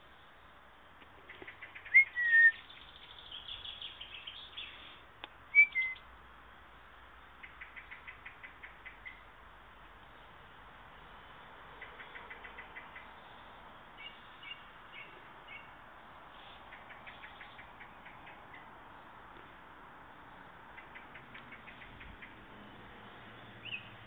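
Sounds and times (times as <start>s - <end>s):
bird chirps: 1.3s - 6.1s, 7.4s - 9.3s, 11.2s - 18.7s, 20.7s - 24.0s
songbird whistled phrases: 1.9s - 2.6s, 5.5s - 6.0s.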